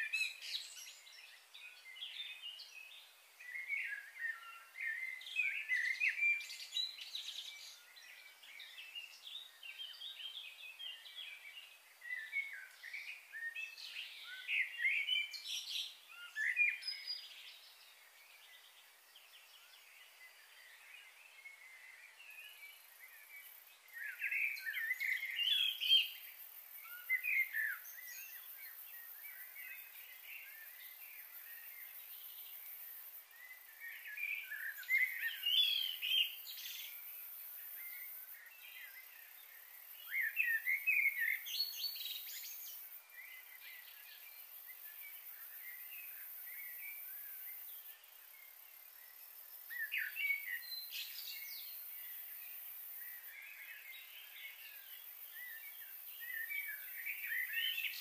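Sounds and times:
faint high-pitched hiss: 0.0s - 58.0s
songbirds chirping and singing: 0.0s - 58.0s.

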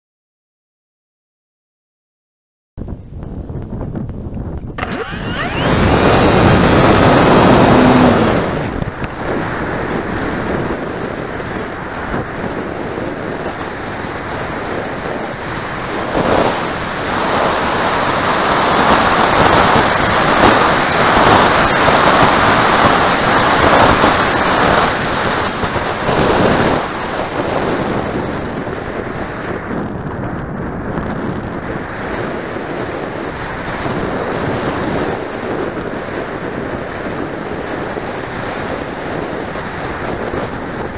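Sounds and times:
wind rushing over camera: 2.8s - 40.9s
propeller motor running: 4.6s - 10.5s, 13.5s - 28.6s.

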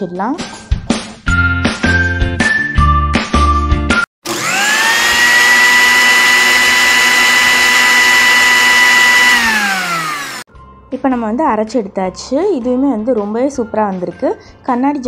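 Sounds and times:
small blender motor whining: 4.2s - 10.5s.

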